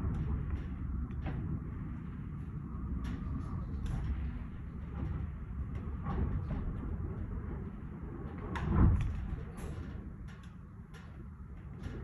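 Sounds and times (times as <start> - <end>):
wind howling against a building: 0.0 - 12.0.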